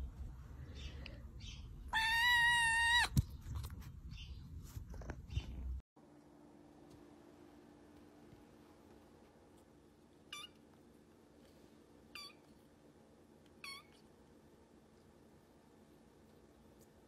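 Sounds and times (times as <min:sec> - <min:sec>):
kitten meowing: 0:01.9 - 0:03.2, 0:10.3 - 0:10.6.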